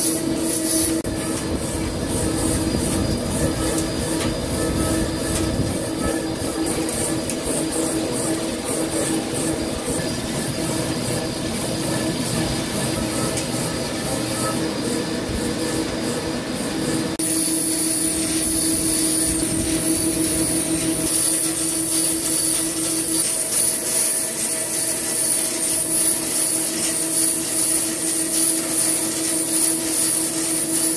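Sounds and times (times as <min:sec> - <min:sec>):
high-pitched machine whine: 0:00.0 - 0:30.9
lathe mechanical drone: 0:00.0 - 0:30.9.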